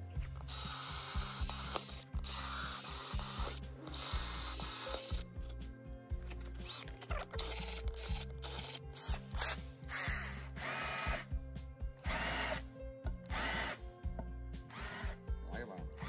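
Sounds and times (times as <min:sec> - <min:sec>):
cordless drill boring plastic: 0:00.4 - 0:05.5, 0:06.3 - 0:11.3, 0:12.0 - 0:12.6, 0:13.2 - 0:13.8, 0:14.7 - 0:15.2.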